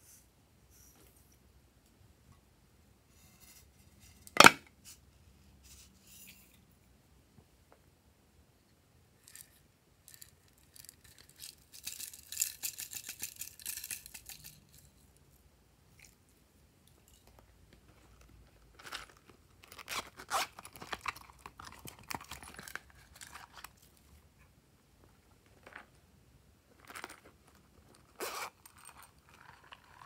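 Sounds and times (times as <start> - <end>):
plastic toys crackling and clicking: 9.3 - 14.9.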